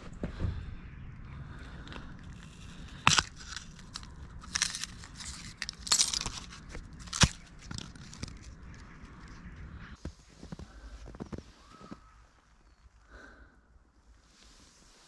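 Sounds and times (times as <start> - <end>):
knife crunching through apple: 2.2 - 8.5.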